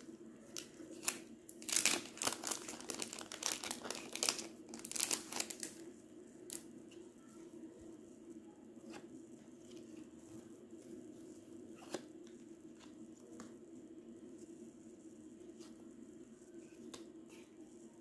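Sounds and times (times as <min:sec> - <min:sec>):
plastic wrapper crinkling: 0:00.6 - 0:05.8.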